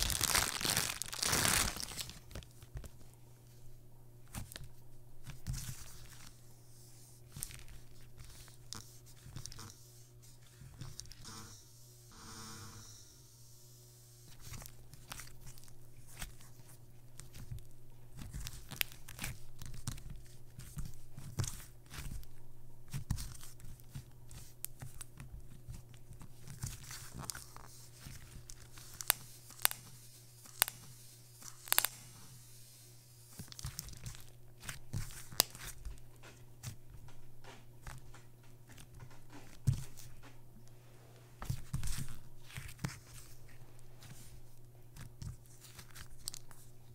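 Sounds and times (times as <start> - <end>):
slime crackling and popping: 0.0 - 2.5, 26.5 - 32.1, 33.3 - 35.9.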